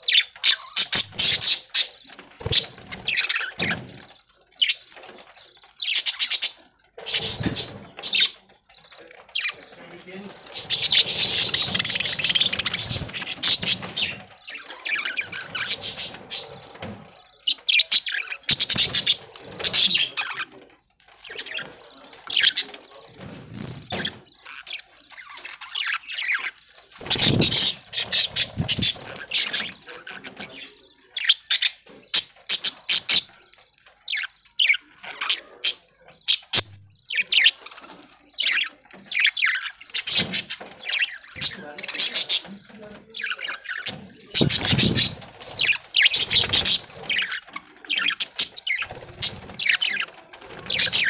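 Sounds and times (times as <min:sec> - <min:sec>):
budgerigars chirping and chattering: 0:00.0 - 0:51.0
wings fluttering: 0:00.1 - 0:17.2, 0:21.1 - 0:30.5, 0:37.6 - 0:51.0.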